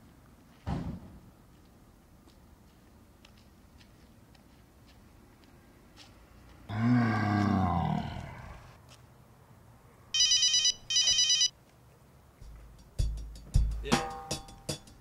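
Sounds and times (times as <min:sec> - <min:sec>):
mobile phone ringing: 0:10.2 - 0:11.5
heavy drum beats: 0:12.4 - 0:15.0.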